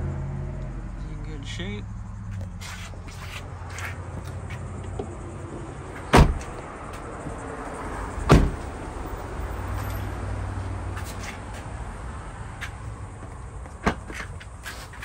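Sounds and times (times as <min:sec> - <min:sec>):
car doors shutting: 0:06.0 - 0:06.7, 0:08.2 - 0:08.8, 0:13.7 - 0:15.0.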